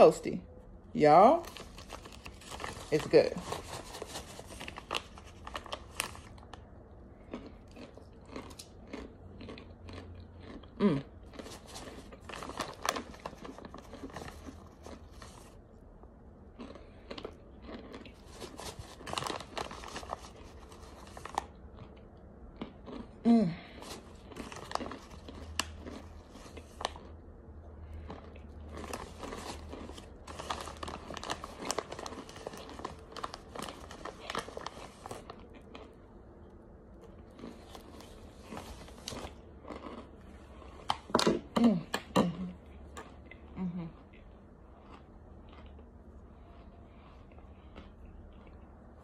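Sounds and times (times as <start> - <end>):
plastic bag crinkling: 1.3 - 6.6, 11.3 - 15.6, 17.7 - 21.5, 23.8 - 27.1, 28.1 - 35.9
person chewing crunchy food: 1.4 - 49.0.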